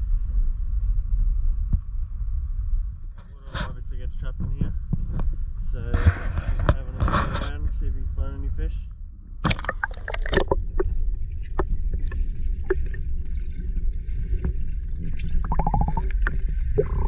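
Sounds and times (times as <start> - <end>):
low rumble: 0.0 - 17.0
water splashing and sloshing: 9.4 - 17.0.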